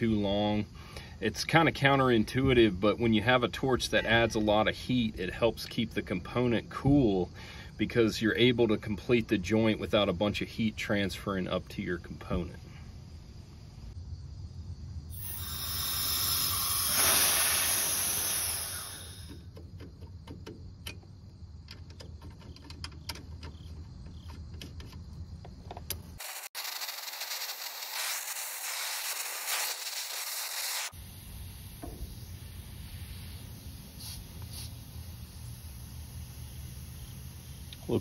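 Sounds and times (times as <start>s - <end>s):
compressed gas hissing: 15.1s - 19.6s, 26.2s - 38.0s.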